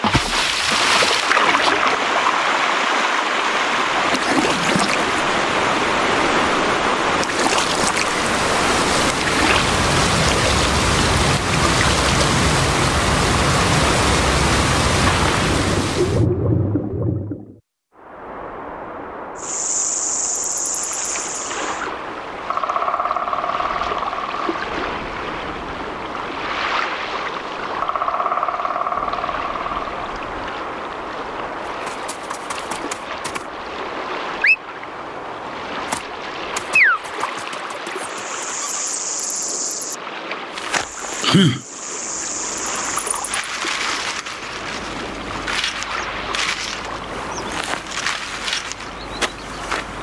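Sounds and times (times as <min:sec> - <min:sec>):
running water: 0:00.0 - 0:17.2, 0:30.1 - 0:50.0
insect buzzes: 0:19.4 - 0:21.8, 0:37.5 - 0:40.0, 0:40.7 - 0:44.1
quick rising whistles: 0:36.7 - 0:37.1.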